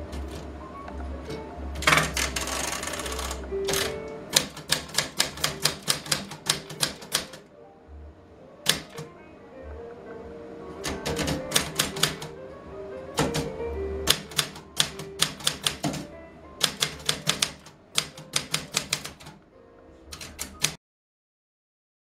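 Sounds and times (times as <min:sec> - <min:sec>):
background music: 0:00.0 - 0:20.8
typewriter key strikes: 0:01.8 - 0:07.4, 0:08.6 - 0:09.1, 0:10.8 - 0:12.3, 0:13.2 - 0:19.4, 0:20.1 - 0:20.8.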